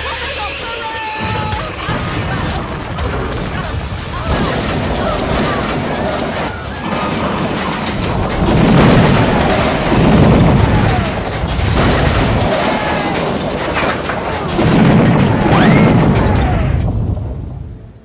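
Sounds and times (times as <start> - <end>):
booming crash rumbles: 1.2 - 18.0.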